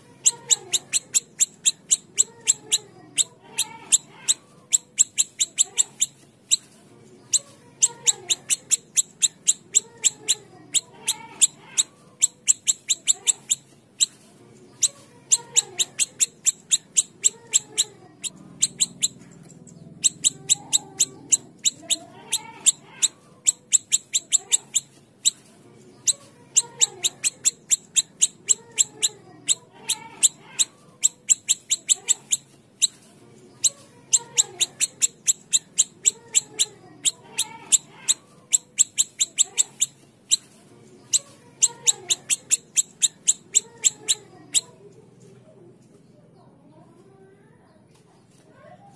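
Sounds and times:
songbird high ticking calls: 0.2 - 6.6, 7.8 - 14.1, 15.3 - 25.4, 26.6 - 30.4, 31.0 - 32.4, 34.1 - 40.4, 41.1 - 44.7.

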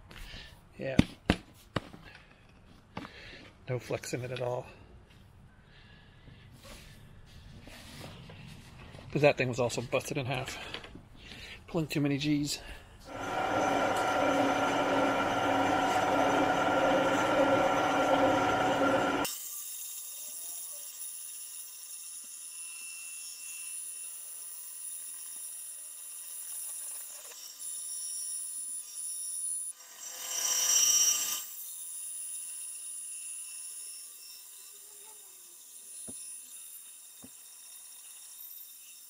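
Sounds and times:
bandsaw whining: 13.1 - 21.1, 28.4 - 39.0
blade cutting plate: 13.1 - 39.0.

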